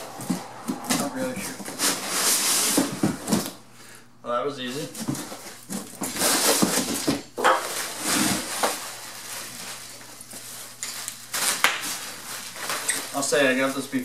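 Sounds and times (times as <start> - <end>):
cardboard box scraping: 0.0 - 3.5
bubble wrap crinkling: 4.7 - 14.0.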